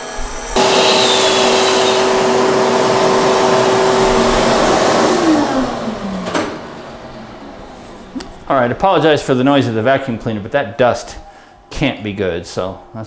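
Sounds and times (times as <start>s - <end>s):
vacuum cleaner switch: 0.0s - 6.8s
vacuum cleaner running: 0.0s - 12.7s.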